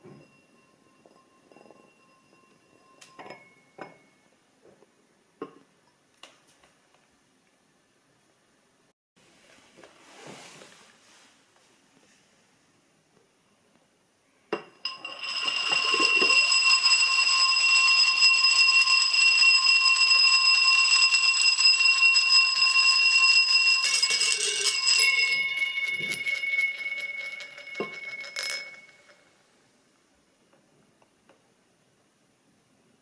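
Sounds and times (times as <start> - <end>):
bead rolling in ringing glass: 0.0 - 4.2, 14.6 - 29.3.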